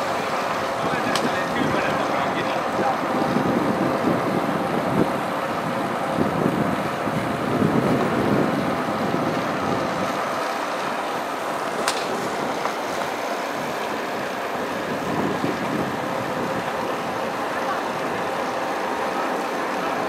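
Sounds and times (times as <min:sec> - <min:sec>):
wind buffeting microphone: 0:00.0 - 0:18.4.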